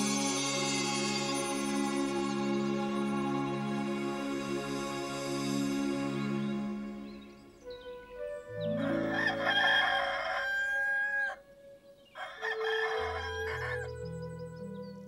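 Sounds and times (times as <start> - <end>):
soft background music: 0.0 - 15.0
rooster crowing: 8.6 - 11.4, 12.1 - 14.0.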